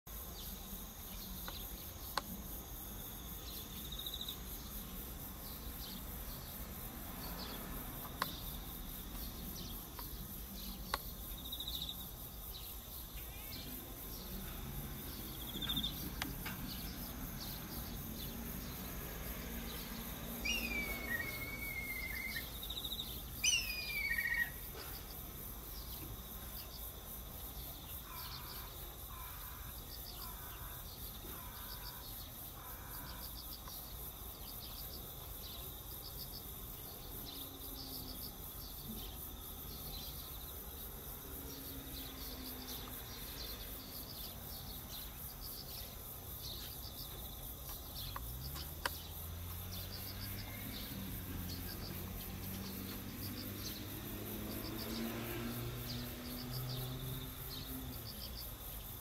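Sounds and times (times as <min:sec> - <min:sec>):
kite whistled call: 0:20.5 - 0:22.5.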